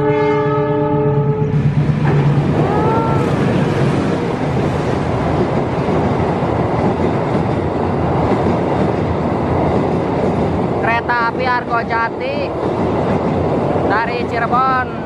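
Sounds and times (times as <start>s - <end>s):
diesel locomotive passing: 0.0s - 15.0s
train wheels clattering on rails: 1.6s - 10.8s.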